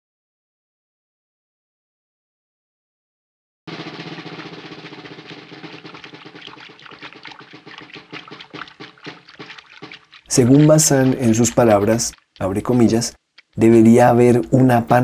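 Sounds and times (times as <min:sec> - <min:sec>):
water splashing and churning: 0:03.7 - 0:15.0.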